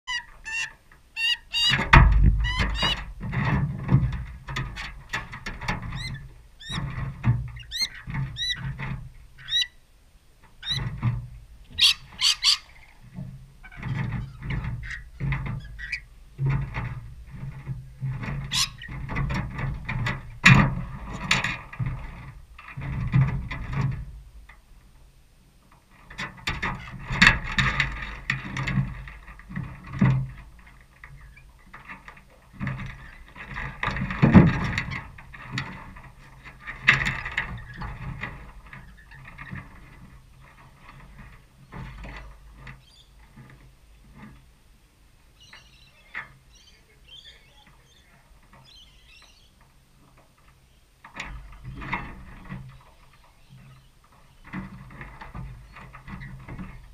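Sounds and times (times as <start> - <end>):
lorikeets chirping: 0.1 - 1.8, 7.6 - 8.6, 9.4 - 9.8, 10.6 - 10.9, 11.7 - 13.0, 18.5 - 18.9, 42.8 - 43.1, 45.4 - 49.6
birds pecking on metal trough: 0.1 - 9.6, 10.4 - 24.2, 25.9 - 44.5, 45.5 - 56.9.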